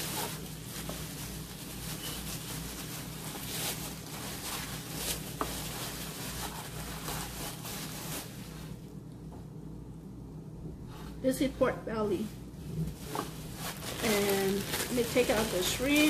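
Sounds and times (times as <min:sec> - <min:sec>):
plastic bag rustling: 0:00.0 - 0:08.9, 0:12.6 - 0:16.0.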